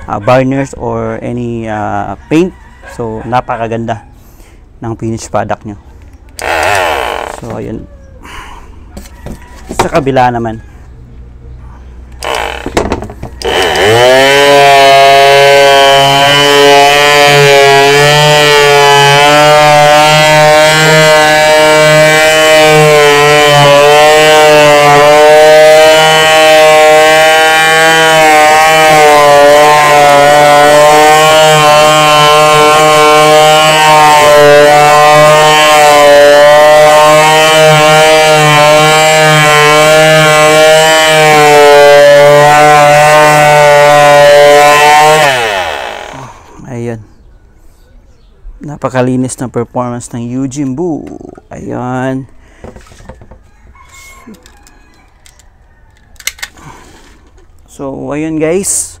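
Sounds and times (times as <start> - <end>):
electric palm sander on wood: 6.4 - 7.7, 12.2 - 46.5.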